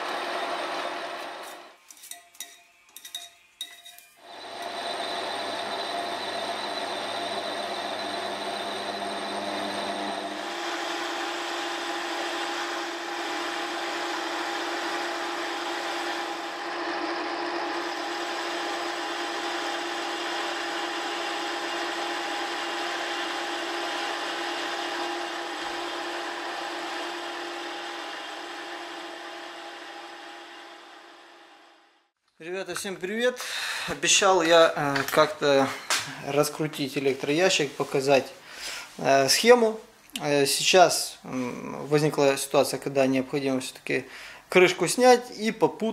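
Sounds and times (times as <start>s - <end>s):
metal lathe whining: 0.0s - 1.7s, 4.2s - 31.6s
metal cutting noise: 0.0s - 31.6s.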